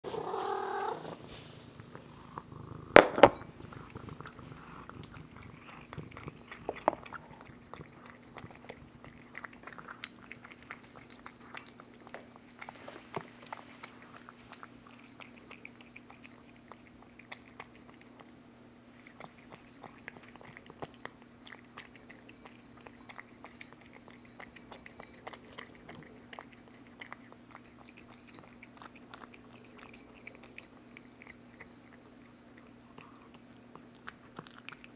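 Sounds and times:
cat chewing and licking wet food: 0.1s - 34.9s
ceramic bowl knocking on floor: 3.0s - 3.5s.

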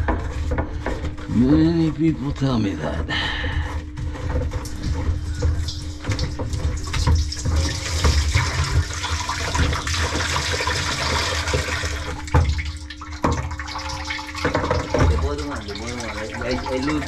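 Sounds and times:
low hum: 0.0s - 8.7s
rubbing and knocking: 0.0s - 17.0s
water rushing in drain: 4.6s - 17.0s.

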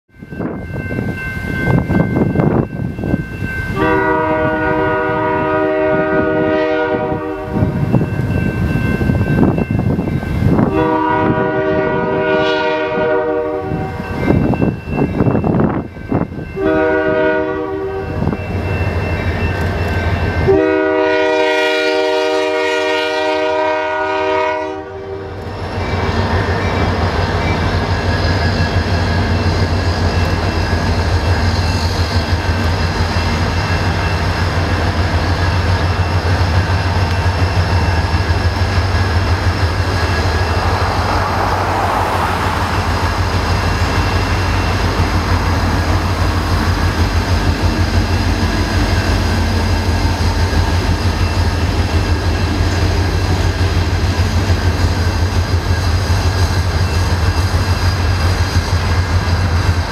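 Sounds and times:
ringing crossing bell: 0.1s - 4.0s, 7.4s - 10.7s, 13.9s - 17.1s, 17.8s - 20.5s, 25.6s - 40.8s
locomotive horn blasts: 3.8s - 7.8s, 10.5s - 14.1s, 16.6s - 18.4s, 20.4s - 25.5s
locomotives rumbling past: 25.2s - 59.9s.

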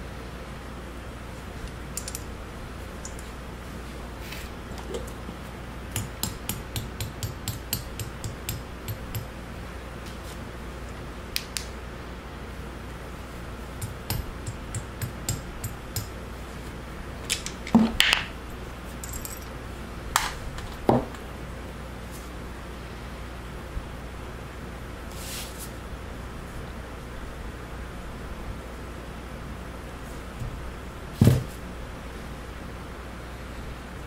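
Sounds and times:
metal tools clicking: 2.0s - 2.3s, 19.0s - 19.5s.

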